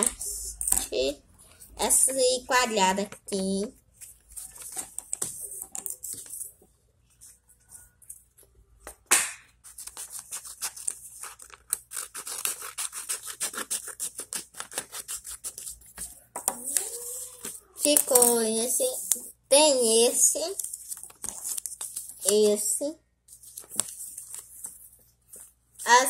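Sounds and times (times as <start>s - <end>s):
paper rustling: 3.9s - 8.4s, 9.5s - 18.4s, 20.5s - 22.7s, 23.3s - 26.0s
scissors cutting paper: 9.6s - 19.2s.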